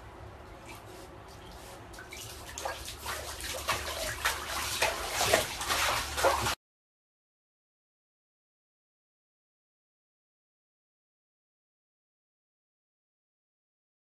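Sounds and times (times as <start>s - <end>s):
dog splashing in bathtub water: 0.6s - 6.6s.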